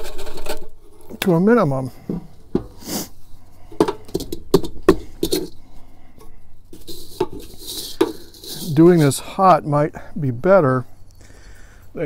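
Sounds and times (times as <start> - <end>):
light metal knocks and scrapes: 0.0 - 9.7
brushing hiss: 1.6 - 4.2, 4.9 - 11.9.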